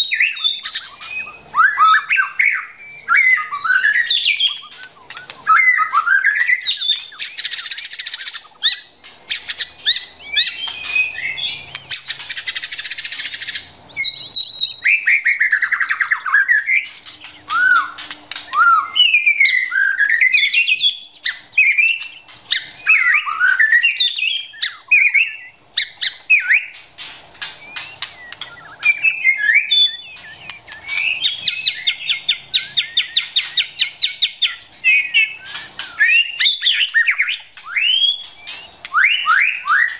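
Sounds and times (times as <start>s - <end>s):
bird singing whistled notes: 0.0s - 26.8s, 27.4s - 39.9s
harsh rasping bird notes: 25.4s - 39.9s.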